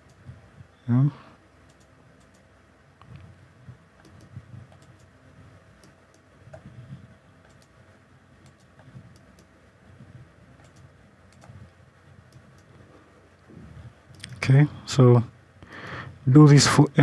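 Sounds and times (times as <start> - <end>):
computer mouse clicking: 1.7 - 3.3, 4.0 - 5.1, 5.8 - 6.7, 7.4 - 7.8, 8.4 - 9.5, 10.6 - 12.8.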